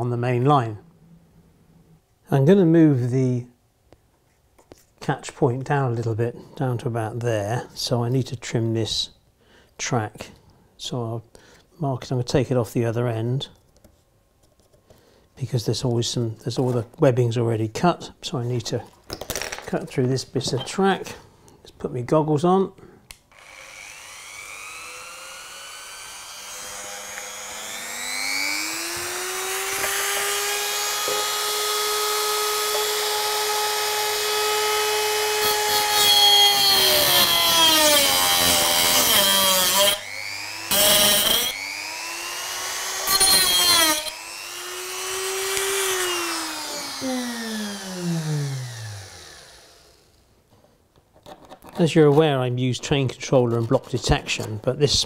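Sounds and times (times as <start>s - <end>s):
rotary tool cutting metal rail: 23.3s - 50.1s
rotary tool winding down: 23.3s - 50.2s.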